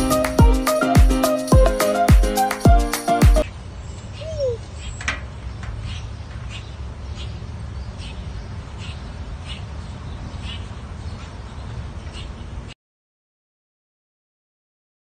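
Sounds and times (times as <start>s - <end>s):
bird chirps: 3.4s - 12.4s.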